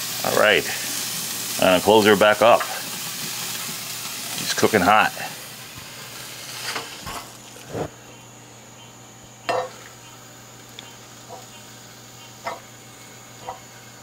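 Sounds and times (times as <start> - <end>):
faint steady hum: 0.3 - 14.0.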